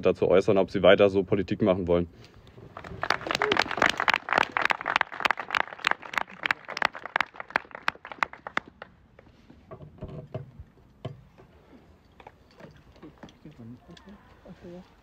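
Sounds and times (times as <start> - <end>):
group clapping: 2.7 - 9.0.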